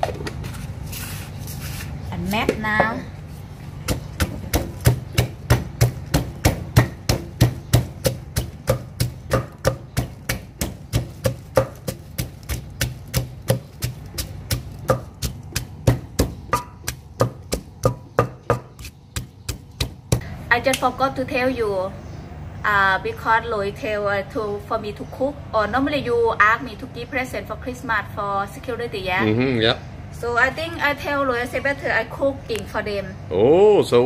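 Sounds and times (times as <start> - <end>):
pestle pounding in mortar: 3.8 - 20.2.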